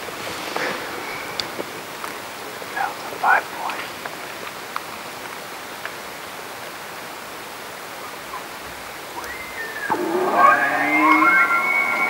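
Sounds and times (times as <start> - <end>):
steady rushing outdoor noise: 0.0 - 12.0
elk bugling whistle: 9.2 - 12.0.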